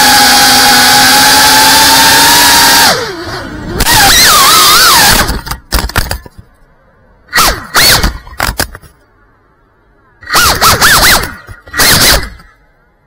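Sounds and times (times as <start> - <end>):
drone motors whining: 0.0 - 5.7.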